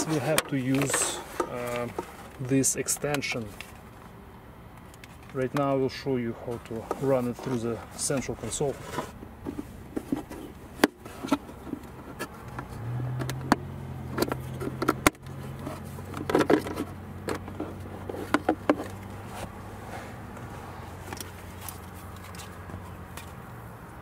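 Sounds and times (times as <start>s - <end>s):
plastic and cable rattling: 0.0s - 4.0s, 6.6s - 19.6s, 20.3s - 23.4s.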